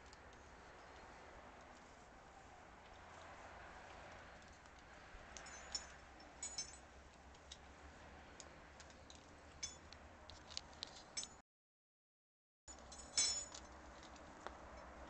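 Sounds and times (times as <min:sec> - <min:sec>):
climbing hardware clinking: 0:05.4 - 0:07.7, 0:08.4 - 0:11.4, 0:12.7 - 0:15.0.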